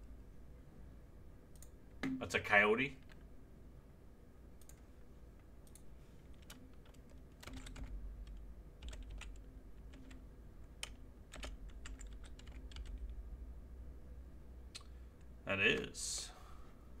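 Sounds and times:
typing on a keyboard: 5.7s - 10.2s, 10.8s - 13.0s.

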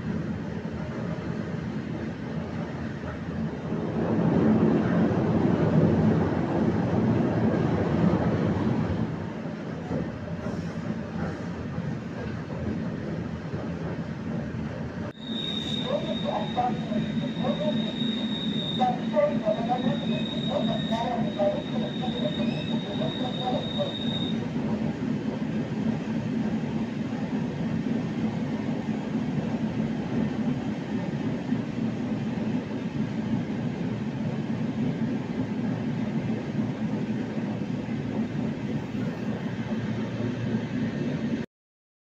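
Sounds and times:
train rumble on rails: 0.0s - 41.5s.

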